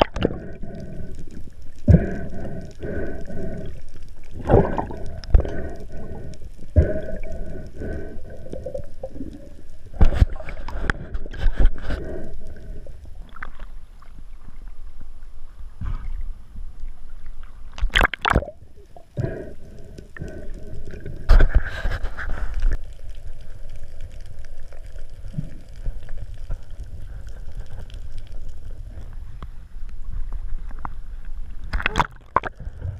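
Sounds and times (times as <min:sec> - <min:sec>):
underwater rumble of moving water: 0:00.0 - 0:32.9.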